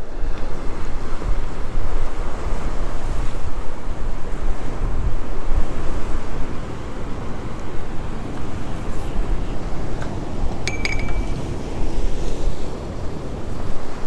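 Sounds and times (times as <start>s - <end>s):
ocean surf: 0.0s - 14.0s
wind noise on microphone: 0.0s - 14.0s
short metallic clink: 10.6s - 11.5s.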